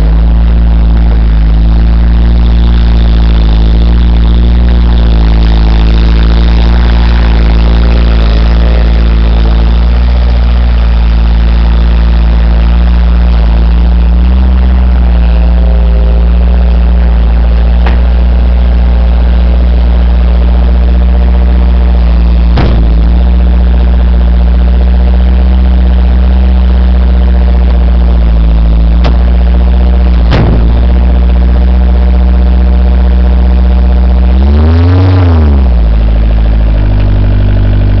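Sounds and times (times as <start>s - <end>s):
loader engine running: 0.0s - 38.0s
sharp clunks: 17.8s - 18.4s, 22.5s - 23.2s, 29.0s - 29.4s, 30.2s - 31.2s.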